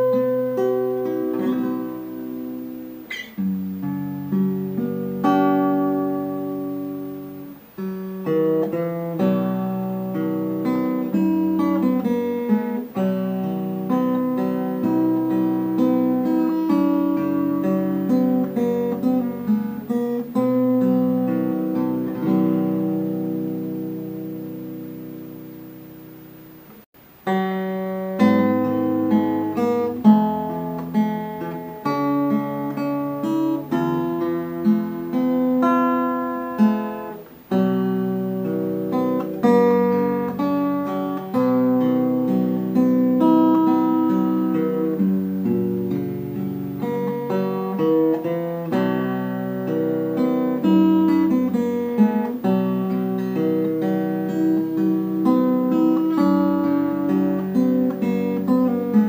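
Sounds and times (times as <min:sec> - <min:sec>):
acoustic guitar music: 0:00.0 - 0:59.0.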